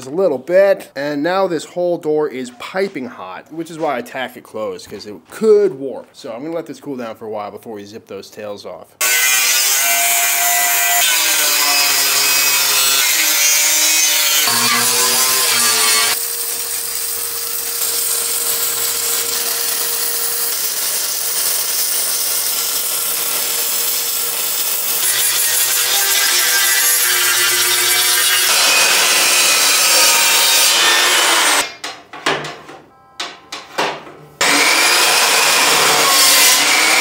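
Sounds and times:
angle grinder grinding steel: 0:09.0 - 0:31.7, 0:34.4 - 0:37.0.

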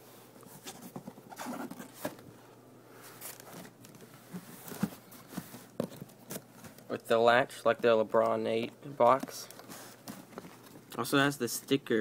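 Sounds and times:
cardboard box handled: 0:03.2 - 0:06.8.

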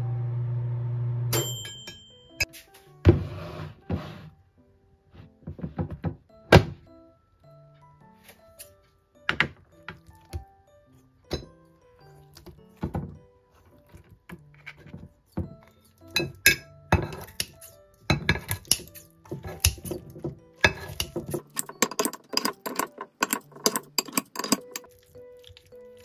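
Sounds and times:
scissors clinking against dish: 0:16.0 - 0:25.7
scissors snipping dumplings: 0:18.5 - 0:20.1.

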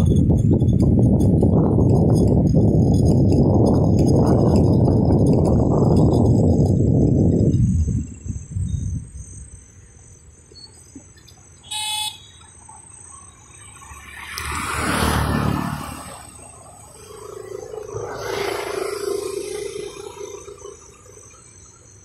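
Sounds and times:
night insects trilling: 0:00.0 - 0:22.0
car horn beep: 0:11.6 - 0:12.4
vehicle passing: 0:13.3 - 0:21.6.

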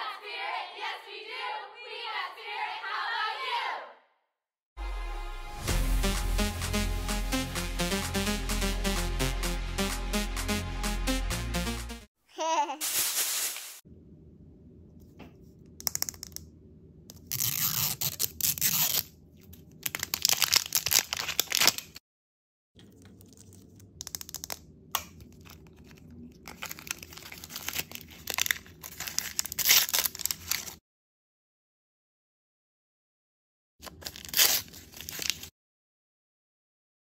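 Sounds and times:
foil and plastic wrappers crinkling: 0:12.8 - 0:13.8, 0:19.6 - 0:22.0, 0:22.9 - 0:30.8, 0:33.8 - 0:35.5.

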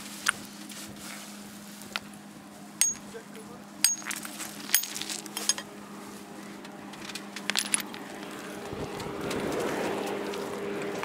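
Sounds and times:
engine: 0:00.0 - 0:11.0
stone clinking against stone: 0:02.8 - 0:03.2, 0:03.8 - 0:05.7.

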